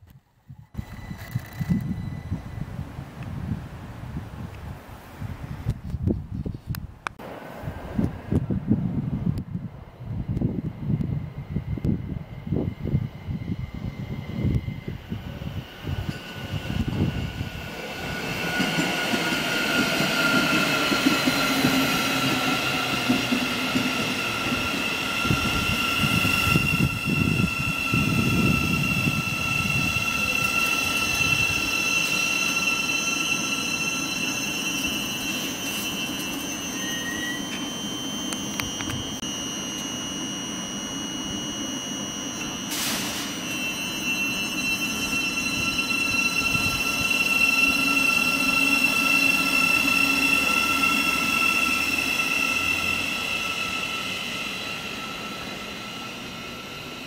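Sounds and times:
high-pitched train whine: 0.3s - 3.6s, 7.2s - 57.0s
train wheels rumbling on rails: 7.6s - 39.1s.

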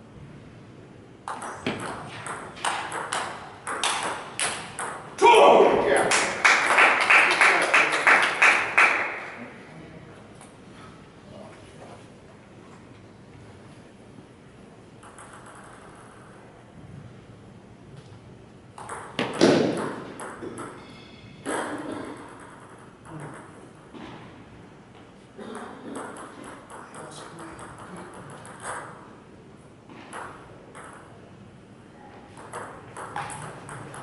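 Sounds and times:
table tennis ball clicking: 15.0s - 16.2s.

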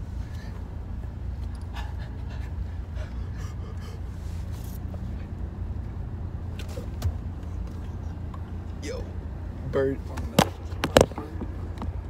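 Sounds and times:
car engine rumble from cabin: 0.0s - 12.0s
stifled laughter gasps: 1.6s - 4.4s.

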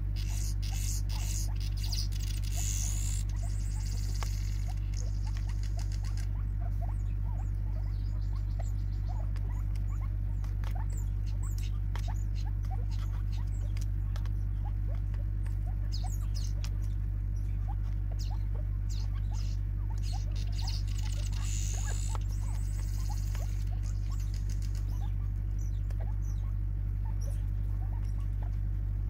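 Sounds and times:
steady low hum: 0.0s - 29.0s
birds pecking light taps: 0.1s - 28.8s.

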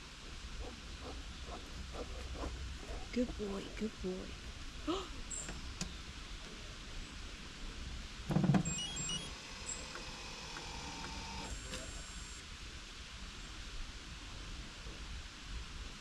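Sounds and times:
faint motor hum: 0.0s - 12.4s
short high electronic beeps: 8.7s - 9.9s.

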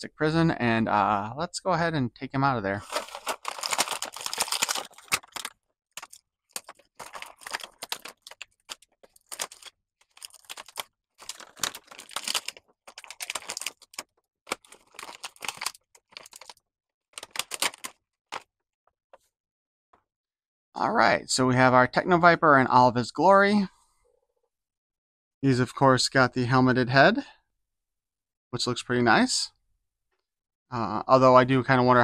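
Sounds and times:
plastic packaging crinkling: 2.8s - 16.6s, 17.2s - 18.4s.

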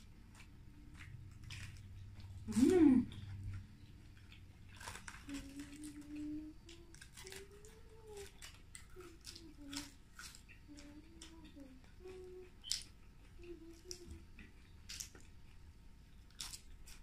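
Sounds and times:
lettuce leaves tearing: 0.0s - 3.3s, 4.7s - 14.2s, 16.3s - 17.0s
eating clicks and crackles: 0.0s - 17.0s
person humming softly: 2.5s - 3.2s, 5.2s - 10.0s, 10.6s - 14.6s.

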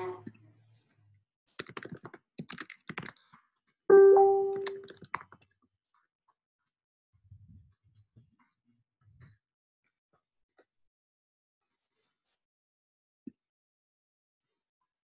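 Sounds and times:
keyboard and mouse clicks: 1.6s - 3.2s, 3.9s - 5.4s
electronic chime: 3.9s - 4.8s.

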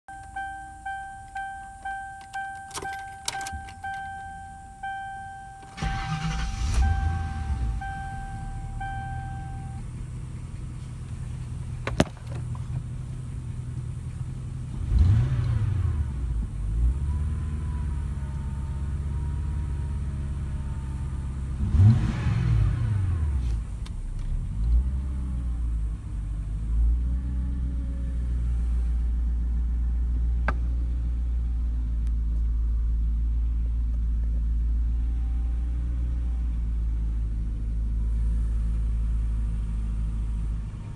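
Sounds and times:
warning tone: 0.1s - 9.8s
car engine idling and revving: 0.1s - 40.9s.

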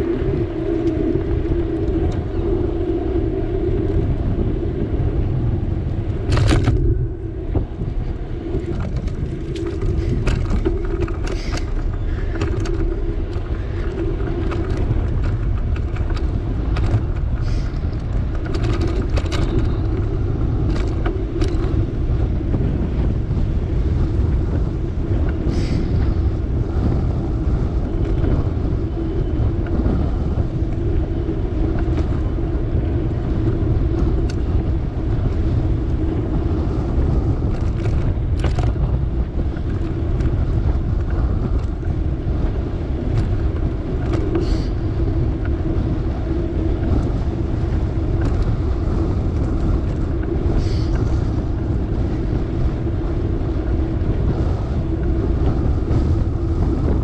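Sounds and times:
bicycle rattles and knocks: 0.0s - 57.0s
bicycle tyre rumble: 0.0s - 57.0s
wind noise: 0.0s - 57.0s.

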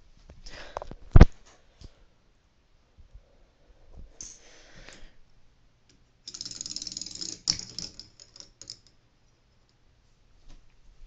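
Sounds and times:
plastic parts clattering: 6.3s - 8.9s
rapid small clicks: 6.3s - 8.9s.

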